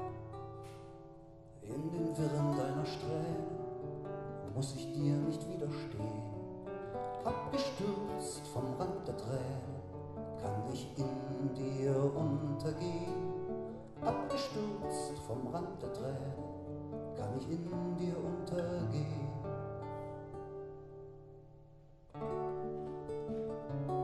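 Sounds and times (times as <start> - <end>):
nylon-string guitar strummed chords: 0.0 - 24.0
man singing softly: 1.6 - 19.9.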